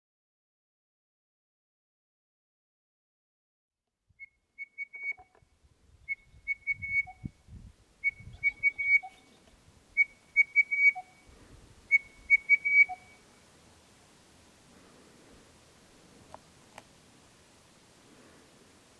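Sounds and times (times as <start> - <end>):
bird whistling song: 4.2 - 5.3, 6.1 - 7.3, 8.0 - 9.4, 10.0 - 11.3, 11.9 - 13.2.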